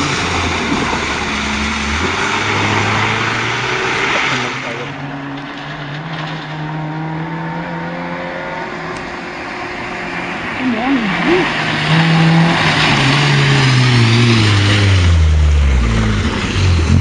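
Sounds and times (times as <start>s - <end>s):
rush of water spray: 0.0s - 5.0s
distant rally car approaching: 0.0s - 17.0s.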